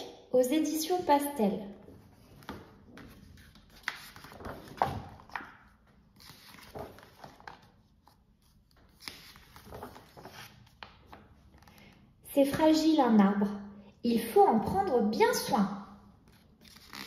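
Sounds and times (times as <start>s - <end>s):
book pages rustling: 1.9s - 12.0s.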